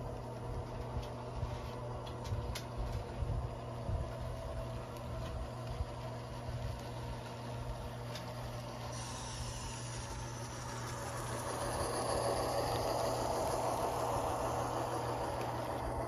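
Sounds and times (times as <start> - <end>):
model train rolling on track: 0.0 - 16.0
diesel engine from small speaker: 8.6 - 16.0
higher hiss: 8.8 - 16.0.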